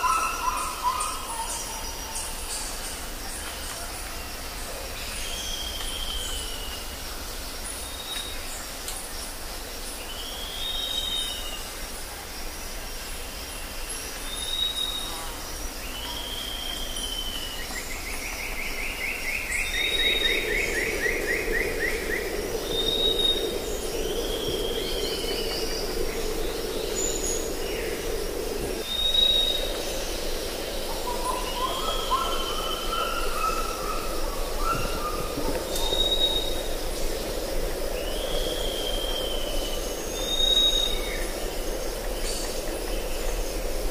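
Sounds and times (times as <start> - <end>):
birds whistling and piping: 28.8 - 29.9, 31.0 - 36.7.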